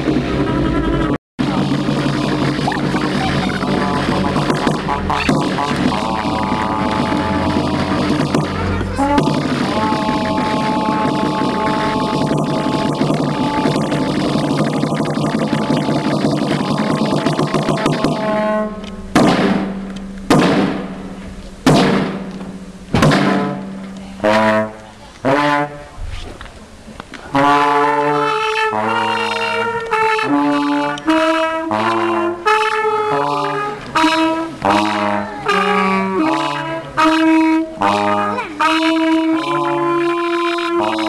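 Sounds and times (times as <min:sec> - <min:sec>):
trombones playing melody: 0:00.0 - 0:26.0, 0:27.3 - 0:41.0
low bass notes: 0:00.0 - 0:41.0
loud drum strikes: 0:01.4 - 0:24.3.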